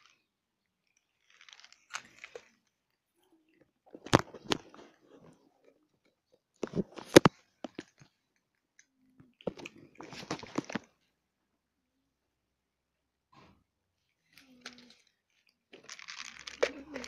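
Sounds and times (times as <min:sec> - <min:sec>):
cats crunching dry kibble: 0:00.8 - 0:03.0, 0:03.6 - 0:05.4, 0:09.4 - 0:10.9, 0:14.3 - 0:17.0.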